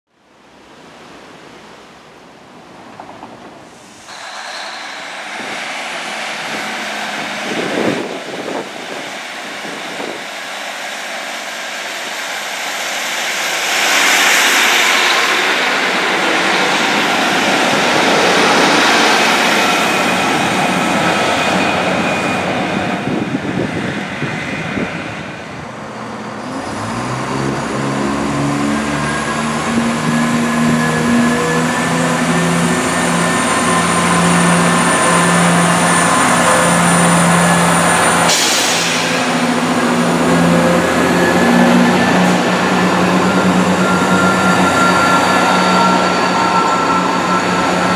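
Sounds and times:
train diesel engine: 0.2s - 47.9s
train wheels passing: 2.6s - 47.9s
deep engine throb rising in pitch: 26.7s - 47.9s.

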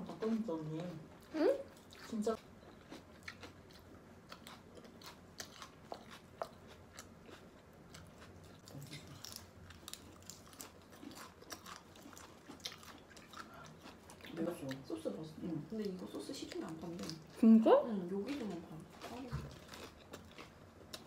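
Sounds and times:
crunching and chewing salad: 0.1s - 21.0s.

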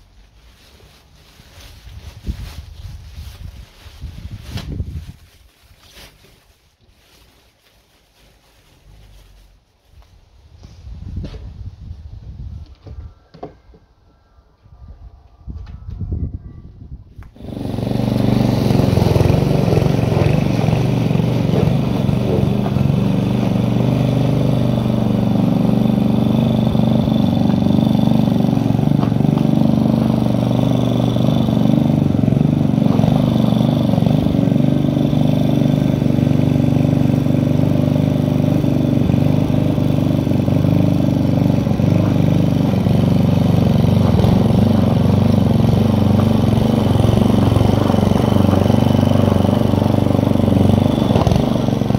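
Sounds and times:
lawn mower engine running: 17.3s - 51.9s.

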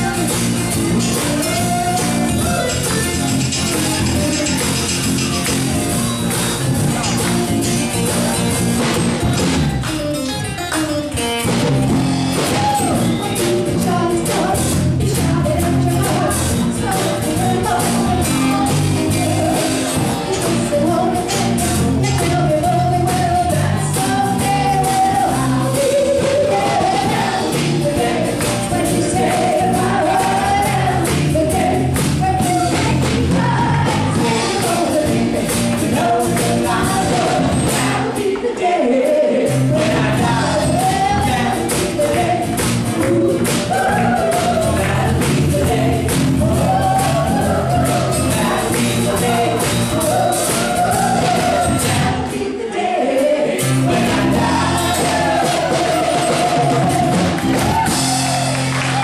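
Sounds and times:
bass line: 0.0s - 38.3s, 39.4s - 52.5s, 53.6s - 59.0s
live band playing: 0.0s - 38.4s, 39.4s - 52.6s, 53.2s - 59.0s
woman singing: 13.1s - 53.1s.

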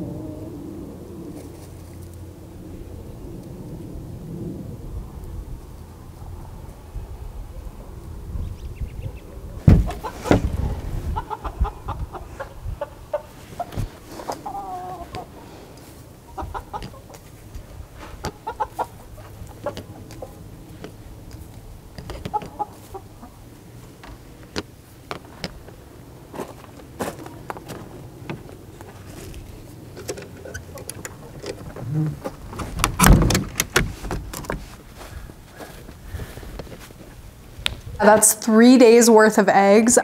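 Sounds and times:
hens clucking: 9.1s - 26.2s
loud wooden knocks: 9.6s - 10.7s, 31.6s - 34.7s.

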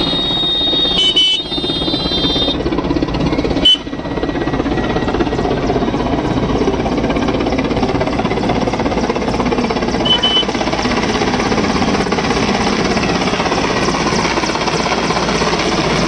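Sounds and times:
high steady tone: 0.0s - 6.0s, 9.8s - 10.7s
helicopter rotor chopping: 0.0s - 16.0s.

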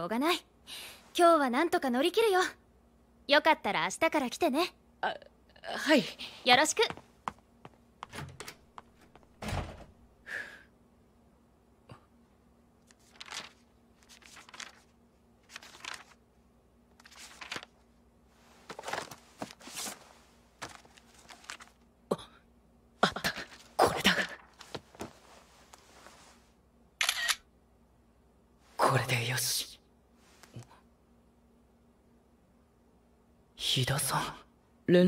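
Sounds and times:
faint steady hum: 0.0s - 35.0s
paper rustling and page flips: 12.8s - 16.2s, 17.0s - 21.8s.

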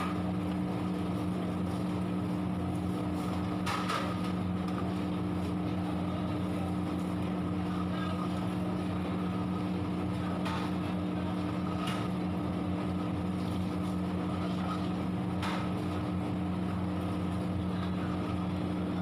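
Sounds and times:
kitchen equipment hum: 0.0s - 19.0s.

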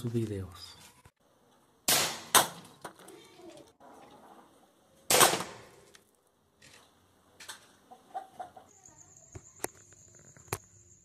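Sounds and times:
air rifle shot hitting plastic bottle: 1.9s - 2.6s, 5.1s - 5.7s
chicken clucking: 7.7s - 8.8s.

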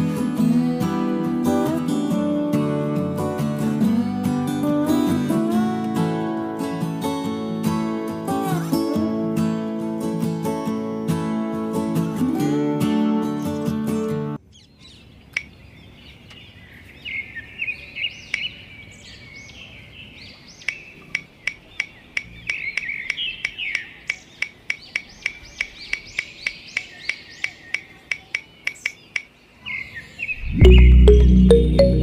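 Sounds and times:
birds chirping: 14.5s - 32.0s.

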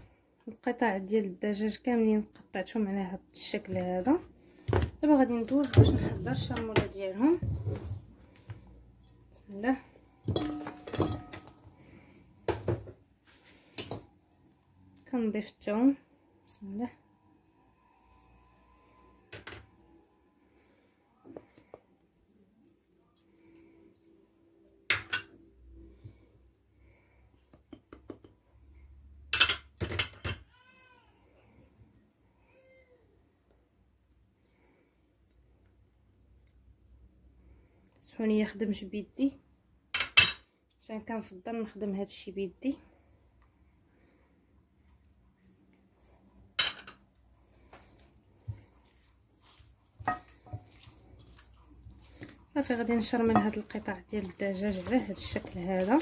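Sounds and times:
ceramic ramekins clinking on glass bowl: 10.2s - 11.6s, 24.9s - 25.3s, 50.0s - 50.7s, 52.9s - 53.7s
hand mixing chicken in marinade: 47.4s - 56.0s.

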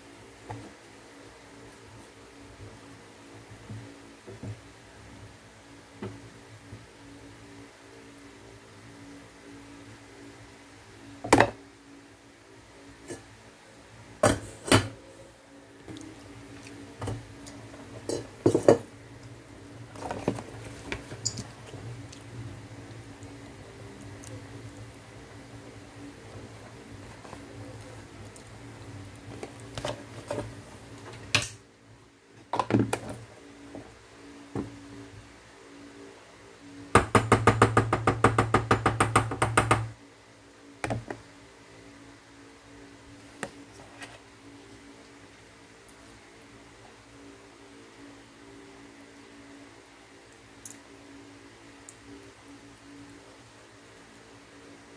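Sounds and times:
low steady hum: 0.0s - 54.9s.

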